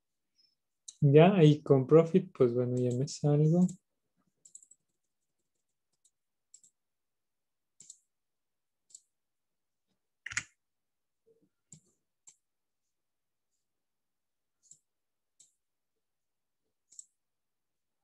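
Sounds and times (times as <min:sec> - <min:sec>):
computer mouse clicking: 0:04.4 - 0:06.8, 0:07.8 - 0:08.1, 0:08.8 - 0:09.1, 0:10.2 - 0:10.6, 0:11.7 - 0:12.4, 0:16.9 - 0:17.2.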